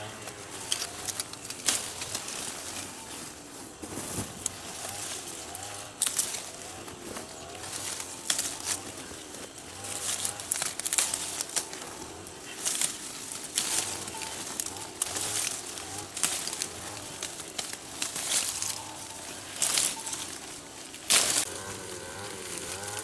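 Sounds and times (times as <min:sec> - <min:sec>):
leaves and twigs rustling: 0:00.0 - 0:23.0.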